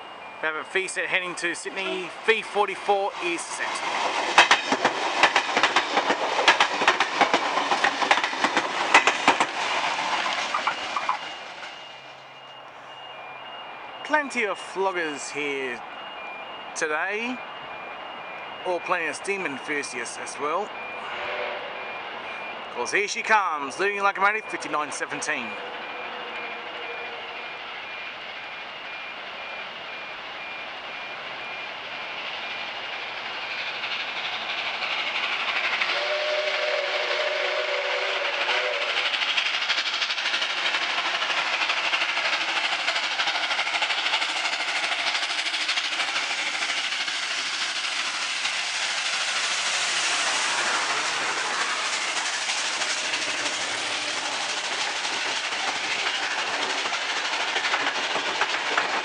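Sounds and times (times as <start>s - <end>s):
train rushing past: 0.0s - 59.0s
steam locomotive whistle: 21.0s - 22.1s, 35.8s - 39.2s.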